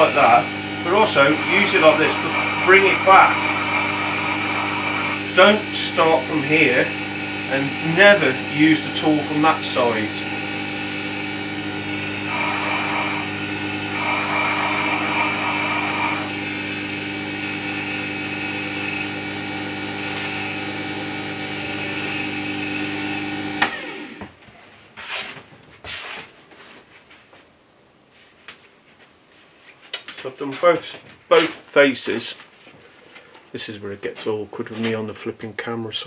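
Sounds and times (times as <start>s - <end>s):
chisel hissing on honing wheel: 0.0s - 10.2s
sharpener motor hum: 0.0s - 24.2s.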